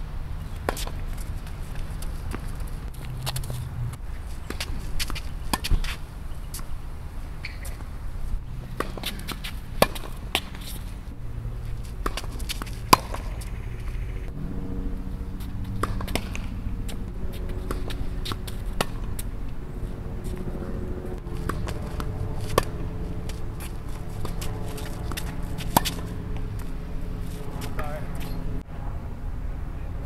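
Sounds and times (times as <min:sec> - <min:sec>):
steady low rumble: 0:00.0 - 0:30.0
tennis ball struck by rackets: 0:00.6 - 0:01.0, 0:04.5 - 0:06.7, 0:08.7 - 0:10.8, 0:11.9 - 0:13.5, 0:15.4 - 0:19.3, 0:21.2 - 0:28.5.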